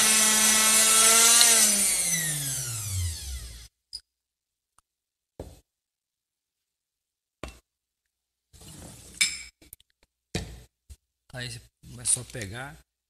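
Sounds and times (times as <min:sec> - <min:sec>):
mixer motor winding down: 0:00.0 - 0:03.7.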